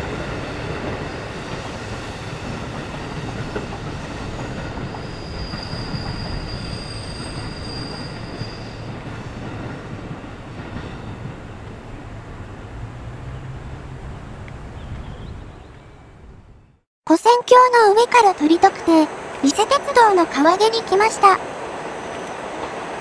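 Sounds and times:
diesel railcars running slowly: 0:00.0 - 0:16.8
high wheel squeal: 0:03.5 - 0:16.7.

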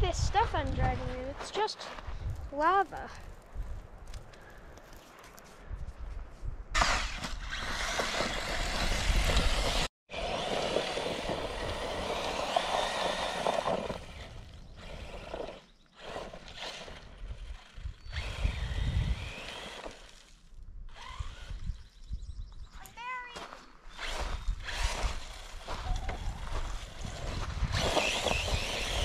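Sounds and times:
rc car motor whine: 0:07.6 - 0:20.1, 0:20.9 - 0:21.9, 0:27.7 - 0:29.0.

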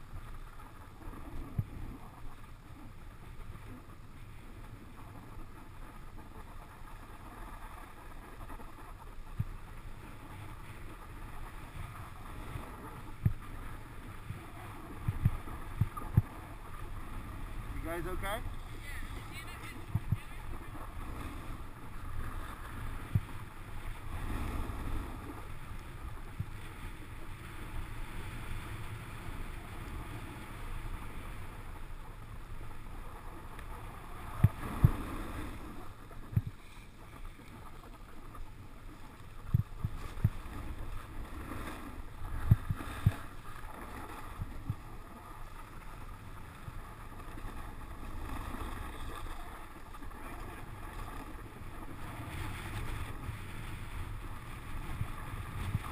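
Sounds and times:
snowboard scraping over snow: 0:03.5 - 0:55.9.

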